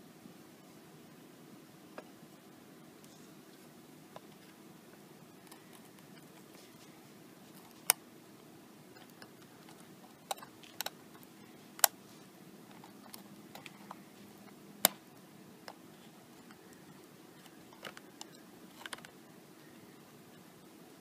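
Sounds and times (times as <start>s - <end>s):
faint steady hum: 0.0s - 21.0s
metal tweezers clicking: 9.0s - 12.0s.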